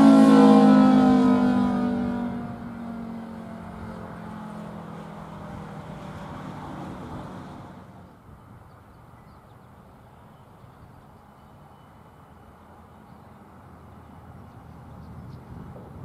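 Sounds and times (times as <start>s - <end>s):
siren winding down: 0.0s - 7.9s.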